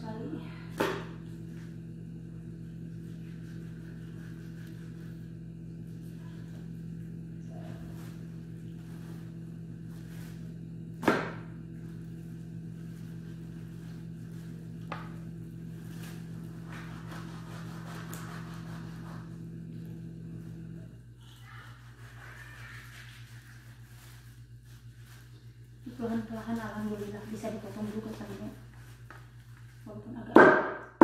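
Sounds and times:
electrical hum: 0.0s - 31.0s
knife chopping on wooden board: 11.0s - 11.4s.

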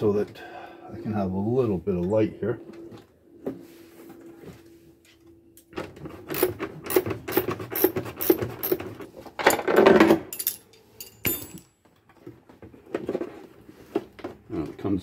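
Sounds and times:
metal hardware clicking and rattling: 6.3s - 11.8s.

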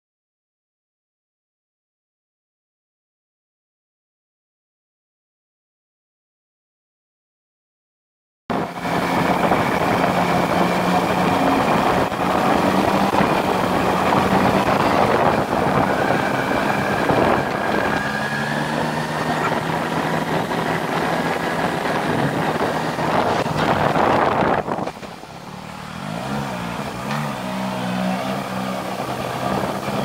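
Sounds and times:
motorcycle engine running: 8.5s - 30.0s
wind and road noise: 8.5s - 30.0s.

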